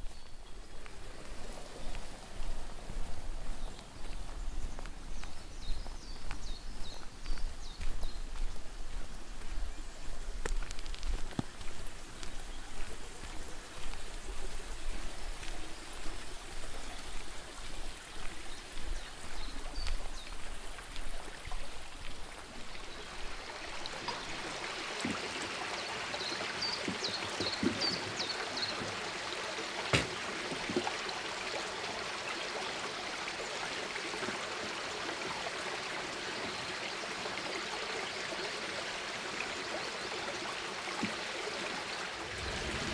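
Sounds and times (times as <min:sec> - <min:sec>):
stream water rushing: 0:11.0 - 0:42.9.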